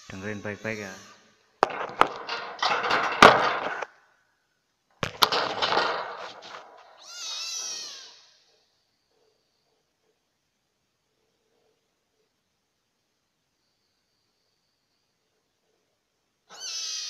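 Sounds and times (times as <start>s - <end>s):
kitten high-pitched cry: 7.0s - 8.4s, 16.5s - 17.0s.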